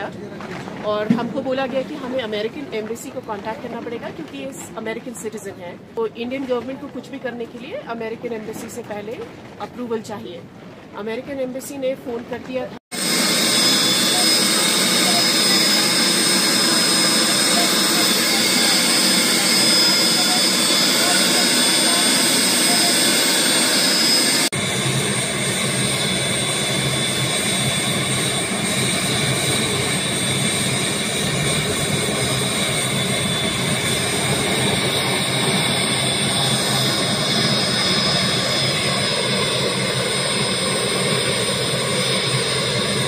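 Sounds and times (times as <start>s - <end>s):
helicopter turbine whine: 11.6s - 43.0s.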